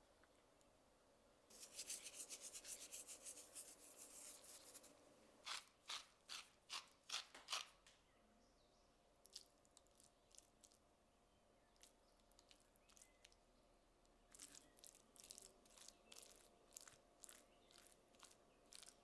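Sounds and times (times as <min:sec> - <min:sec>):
salt pattering on potato slices: 0:14.3 - 0:19.0.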